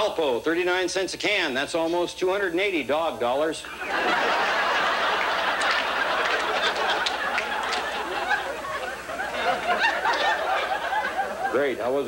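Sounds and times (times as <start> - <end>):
audience laughing: 3.6 - 12.0
scattered clapping: 4.7 - 10.7.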